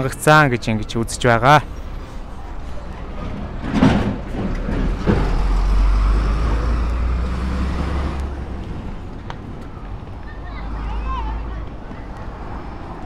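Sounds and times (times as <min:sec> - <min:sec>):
bump: 0:03.2 - 0:08.2
vehicle driving past: 0:03.6 - 0:09.8.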